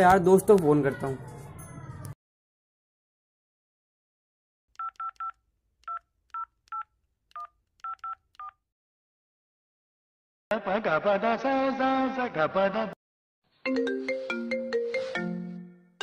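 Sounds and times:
touch-tone keypad beeps: 4.8s - 8.6s.

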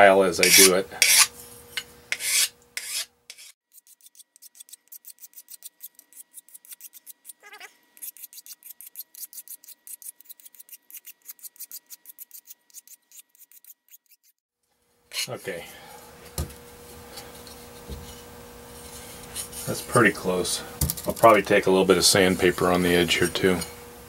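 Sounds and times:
hand file rasping metal: 0.4s - 14.4s.

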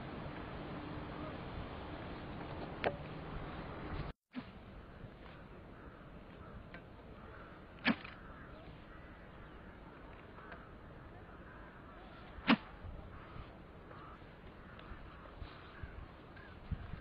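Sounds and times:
throwing stick swishing overhead: 12.4s - 12.8s.

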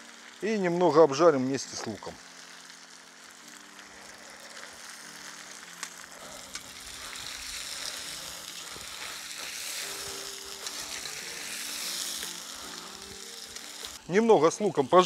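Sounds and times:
meat and onions sizzling in oil: 0.0s - 15.0s.

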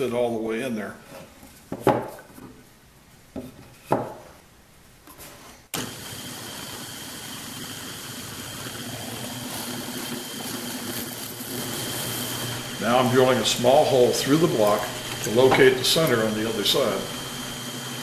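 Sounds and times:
drill press motor whining: 5.8s - 9.3s, 10.4s - 18.0s.

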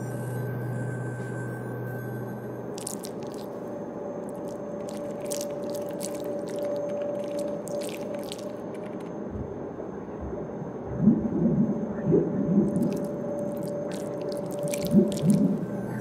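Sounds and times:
electronic noise wash: 10.9s - 16.0s.

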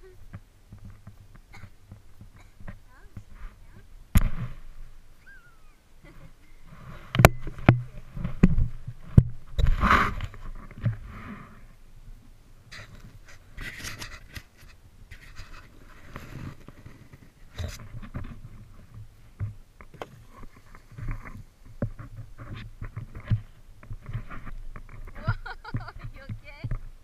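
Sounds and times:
plastic sled dragged on snow: 6.0s - 11.8s, 12.7s - 19.1s.

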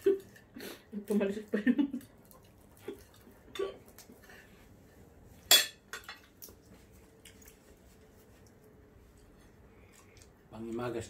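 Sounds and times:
cutlery clinking on plates: 5.5s - 6.4s.

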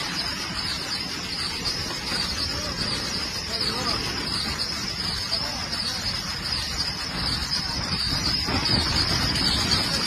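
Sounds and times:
train rumbling on track: 0.0s - 10.0s.

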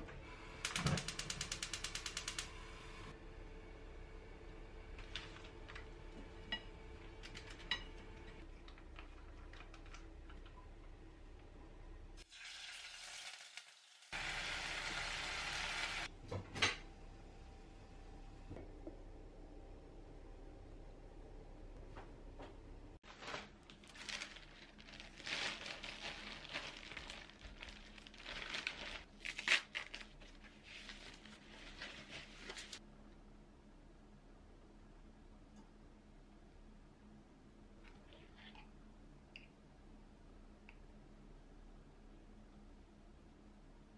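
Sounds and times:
faint steady hum: 2.1s - 12.2s, 16.0s - 43.9s
shopping bag crinkling: 23.0s - 32.8s.

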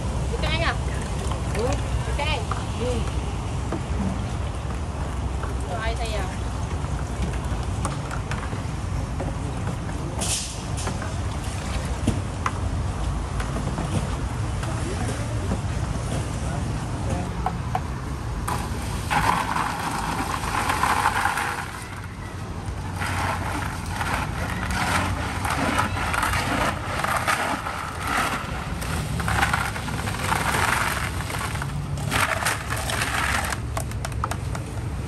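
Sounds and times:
road traffic rumble: 0.0s - 35.0s
ice cubes rattling in tub: 18.5s - 33.8s.

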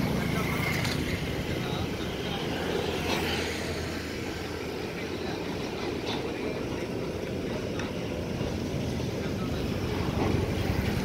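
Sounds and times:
freight train rolling past: 0.0s - 11.0s.

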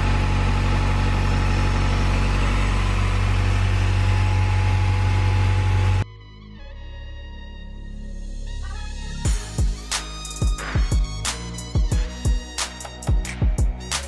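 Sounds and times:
car engine idling: 0.0s - 6.0s.

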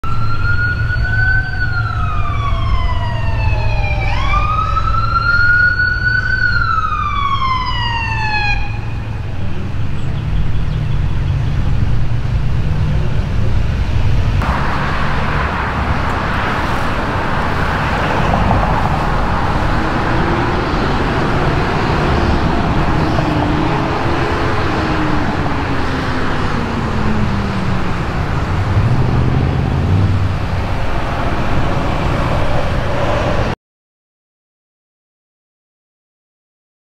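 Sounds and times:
emergency siren wailing: 0.0s - 10.0s, 14.4s - 33.5s
heavy vehicle engines: 0.0s - 33.6s
road noise: 0.0s - 33.6s.

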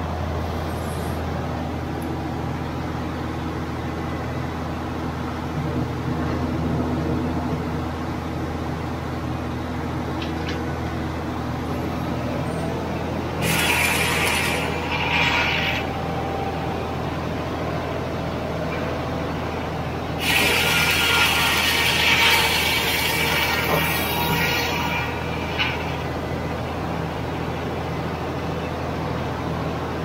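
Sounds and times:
circular saw blade humming: 12.3s - 26.8s
saw blade cutting log: 13.4s - 15.9s, 20.2s - 26.0s.

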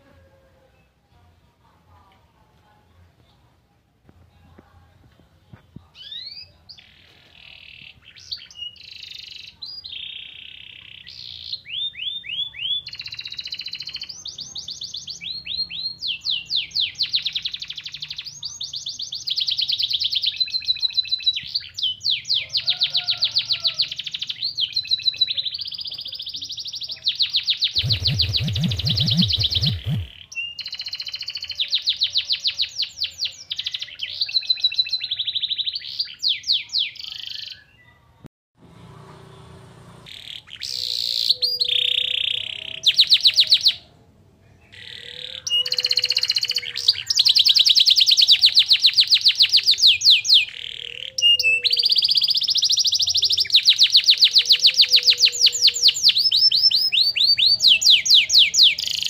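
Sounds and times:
canary singing trills: 6.0s - 38.0s, 40.1s - 43.9s, 44.6s - 59.0s
noisy rumble: 27.8s - 30.2s.

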